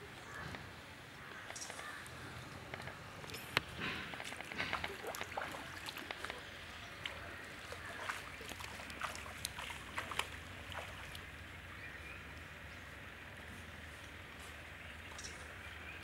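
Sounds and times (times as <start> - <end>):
short irregular clicks and cracks: 1.3 - 5.3, 5.9 - 6.4
footsteps splashing in muddy water: 2.9 - 11.7.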